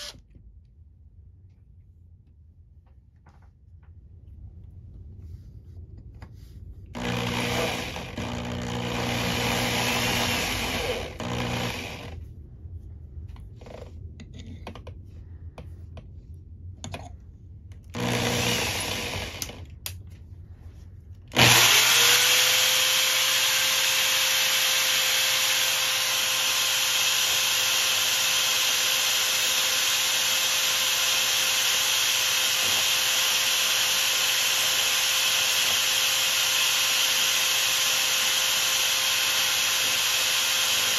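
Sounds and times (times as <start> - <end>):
electric drill whining: 0.0 - 0.2, 7.0 - 12.2, 17.9 - 19.7, 21.3 - 40.9.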